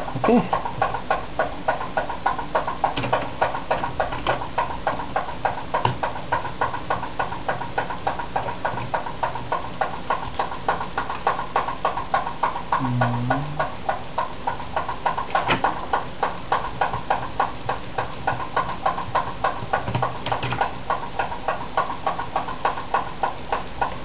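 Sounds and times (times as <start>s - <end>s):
rapid ticking: 0.0s - 24.0s
faint low hum: 12.7s - 13.8s.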